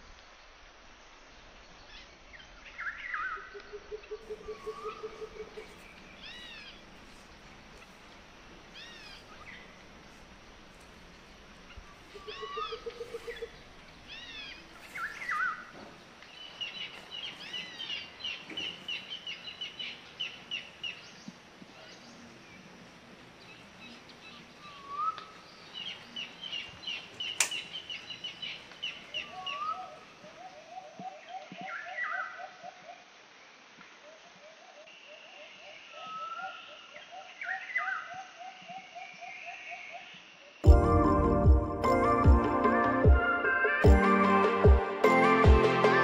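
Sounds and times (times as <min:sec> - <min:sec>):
birds chirping and trilling: 0:01.9 - 0:32.5
sharp click: 0:27.4 - 0:27.7.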